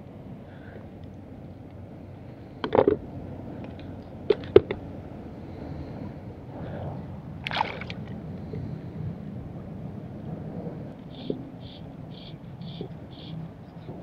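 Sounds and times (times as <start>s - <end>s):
water splashing: 7.4s - 8.2s.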